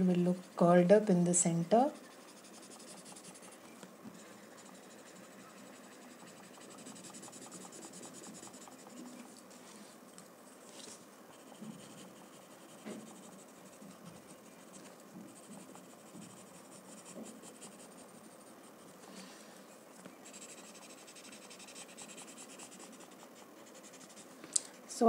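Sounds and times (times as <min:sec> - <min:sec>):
pencil scratching on paper: 0:00.1 - 0:09.3, 0:11.3 - 0:19.0, 0:20.2 - 0:24.3.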